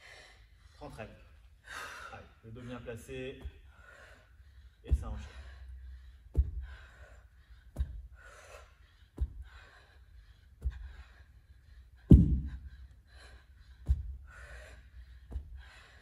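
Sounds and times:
hard gasping breaths: 0:00.0 - 0:16.0
kettlebell thudding on mat: 0:12.1 - 0:12.6.

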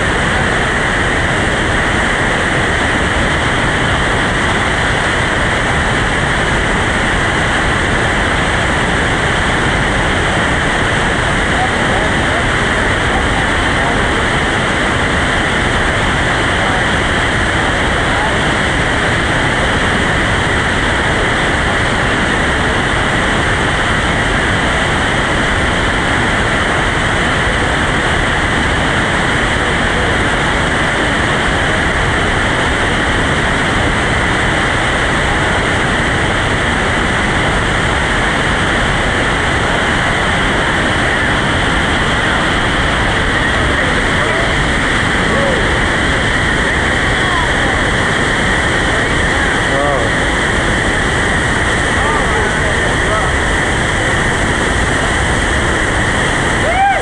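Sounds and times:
whitewater rapid roaring: 0:00.0 - 0:57.0.

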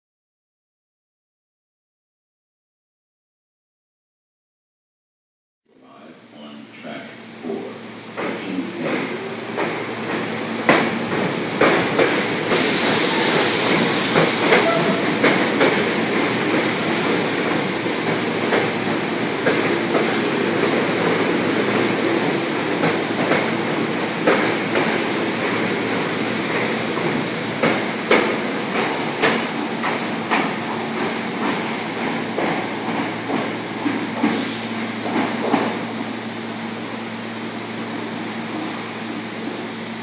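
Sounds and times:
train rumbling past: 0:05.9 - 0:40.0
air hiss: 0:12.5 - 0:15.0.

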